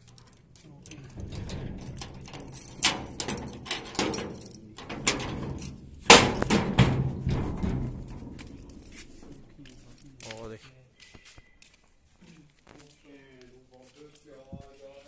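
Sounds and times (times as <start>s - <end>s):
keys jangling: 0.0s - 10.3s
padlock clacking against metal door: 0.0s - 10.4s
sharp metallic clicks: 0.0s - 10.4s.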